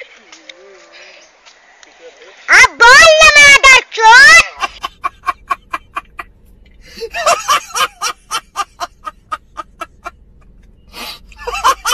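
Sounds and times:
man laughing hard: 0:04.6 - 0:06.3, 0:06.9 - 0:10.1, 0:11.3 - 0:11.9.

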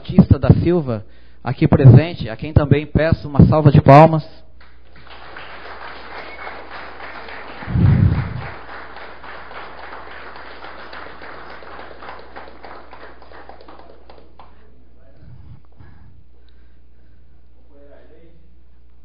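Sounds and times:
audience applauding: 0:04.6 - 0:14.6
loud low thump: 0:07.7 - 0:08.5.

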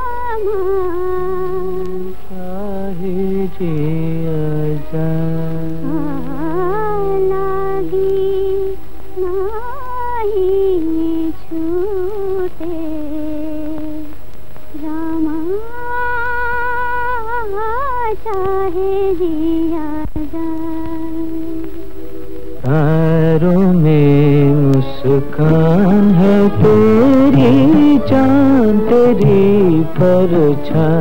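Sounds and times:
woman humming a melody: 0:00.0 - 0:14.1
soft steady drone: 0:00.0 - 0:31.0.

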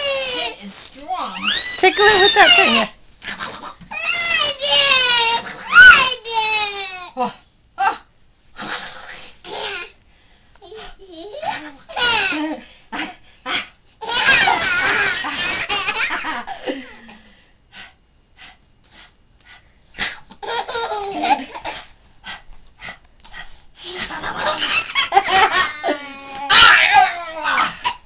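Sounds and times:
baby laughing: 0:20.4 - 0:21.8, 0:23.9 - 0:26.0.

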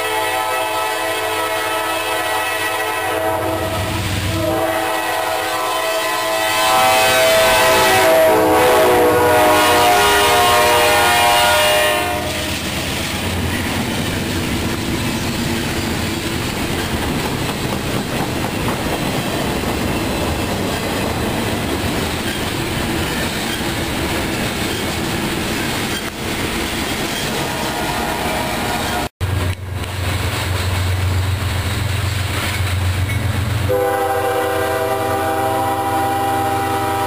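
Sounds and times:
train horn: 0:00.0 - 0:12.6, 0:27.4 - 0:29.1, 0:33.6 - 0:37.0
freight train wheel and rail noise: 0:00.0 - 0:37.0.

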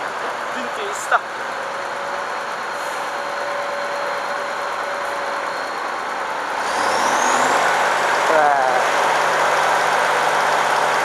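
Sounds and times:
tractor diesel engine revving: 0:00.0 - 0:11.0.

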